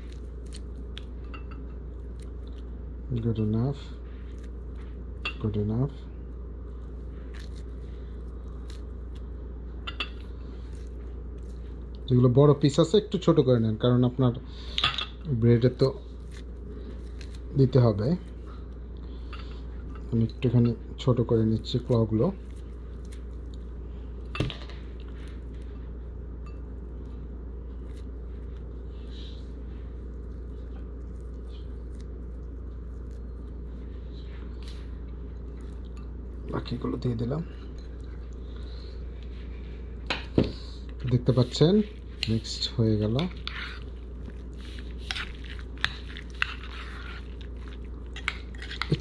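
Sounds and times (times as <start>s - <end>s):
soft clicks and squishes of meat: 0.0s - 1.2s, 21.7s - 23.7s
low background hum: 0.0s - 49.0s.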